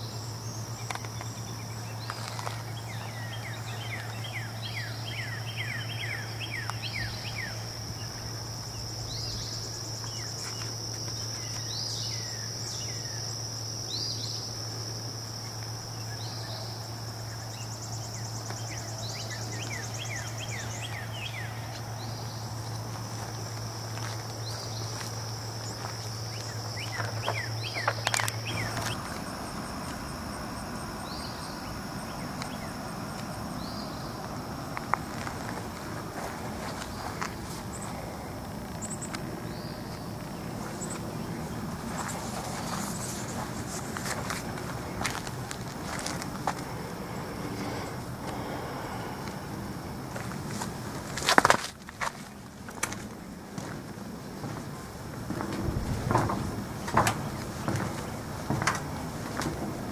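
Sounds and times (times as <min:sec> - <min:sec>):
bird chirps: 0:00.0 - 0:13.2, 0:26.3 - 0:29.1.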